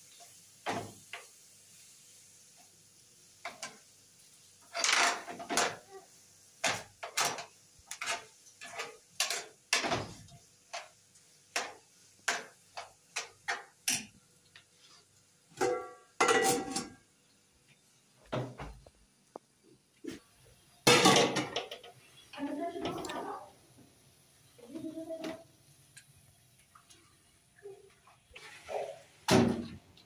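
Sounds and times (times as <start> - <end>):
utensil clinking and scraping pan: 6.6 - 10.0, 15.6 - 17.0.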